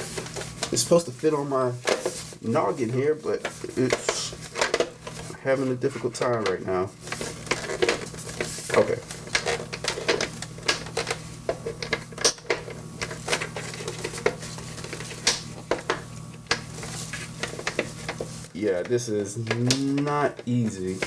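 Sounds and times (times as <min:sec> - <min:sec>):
steady low hum: 0:00.0 - 0:21.0
plastic helmet clicking and knocking: 0:08.8 - 0:14.4.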